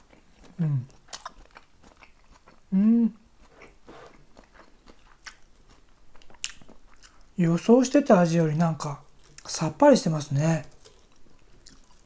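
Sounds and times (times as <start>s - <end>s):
person chewing food: 0.0s - 7.4s, 9.1s - 9.5s, 10.6s - 12.0s
person humming mm: 0.6s - 0.9s, 2.7s - 3.3s.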